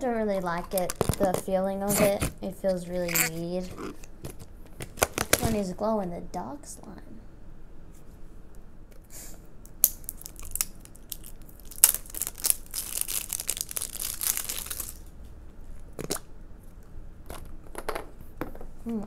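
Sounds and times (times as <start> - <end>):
plastic wrapping crinkling: 9.8 - 15.1.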